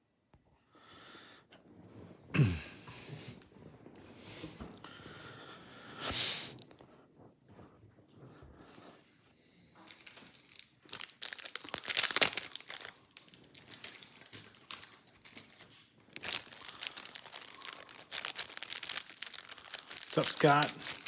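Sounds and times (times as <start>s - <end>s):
wrapping crinkling and rustling: 9.6s - 21.0s.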